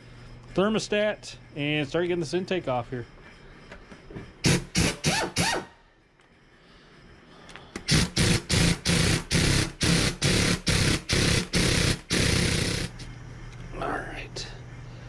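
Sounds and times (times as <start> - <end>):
air ratchet whirring bursts: 4.4 - 5.8, 7.8 - 13.1.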